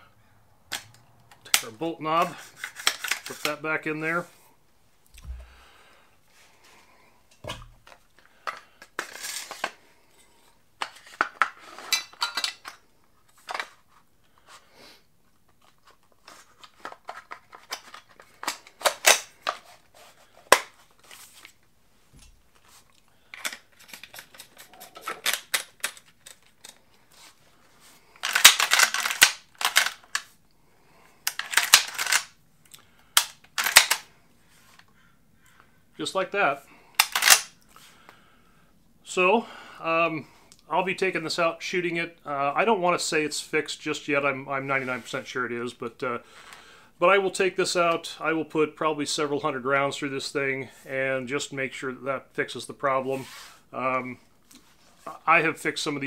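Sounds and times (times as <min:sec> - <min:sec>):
shotgun parts clicking and sliding: 0:00.7 - 0:03.6, 0:07.3 - 0:09.8, 0:10.8 - 0:13.8, 0:15.5 - 0:19.8, 0:23.3 - 0:27.0, 0:28.2 - 0:30.4, 0:31.3 - 0:32.4, 0:33.2 - 0:34.1, 0:37.0 - 0:37.5.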